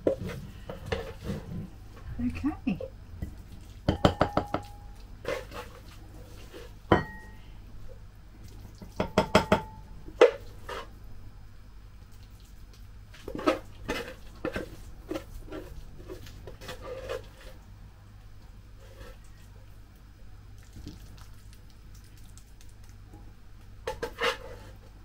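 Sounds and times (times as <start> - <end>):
metal spoon scraping a pot: 13.3 - 17.6, 23.9 - 24.8.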